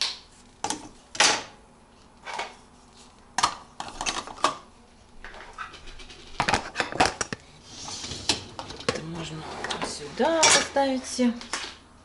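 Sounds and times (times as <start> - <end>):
plastic dishes clattering on wire racks: 3.4 - 7.4, 8.2 - 10.8.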